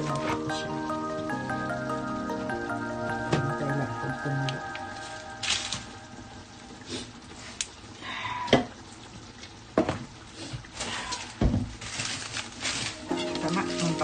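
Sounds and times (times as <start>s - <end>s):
low hiss: 0.0s - 8.1s.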